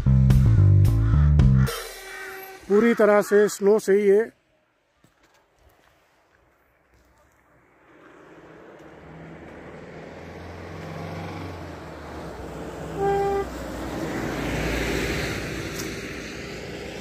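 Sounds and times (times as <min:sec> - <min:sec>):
vehicle passing by: 0:06.5 - 0:17.0
car horn toot: 0:12.9 - 0:13.6.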